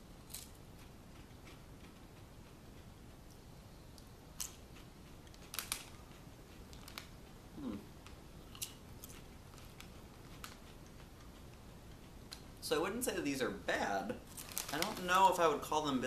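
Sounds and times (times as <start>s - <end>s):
potato chips crunching: 0.2s - 2.0s, 4.4s - 7.1s, 8.5s - 11.3s, 14.3s - 15.7s.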